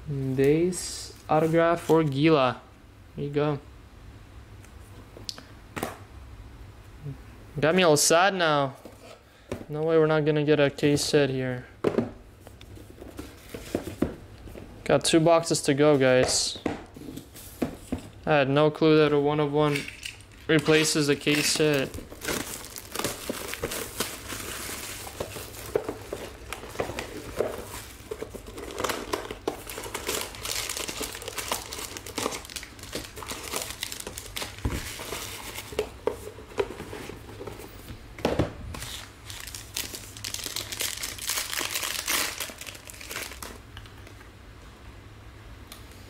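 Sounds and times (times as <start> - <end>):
foil wrapper crinkling and tearing: 20.4 - 35.8, 38.8 - 43.6.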